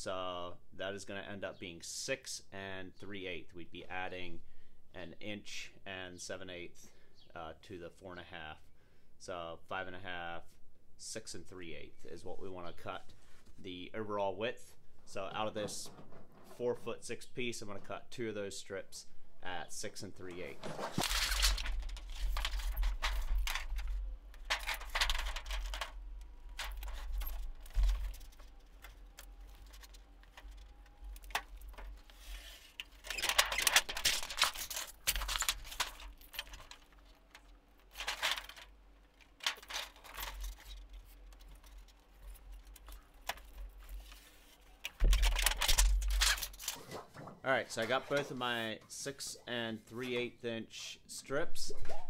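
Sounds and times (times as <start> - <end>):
sheet metal rattling and scraping: 20.4 - 47.0.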